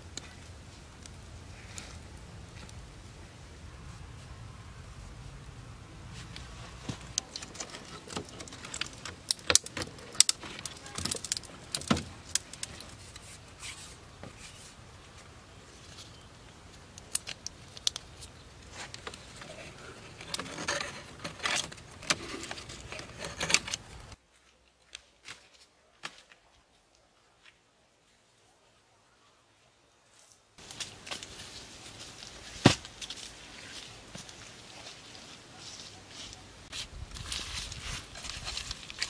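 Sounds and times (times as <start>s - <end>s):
cane strip scraping and rustling: 6.1s - 14.8s, 17.1s - 24.2s
cane and bamboo clicking: 6.3s - 14.6s, 15.8s - 24.2s, 37.2s - 39.0s.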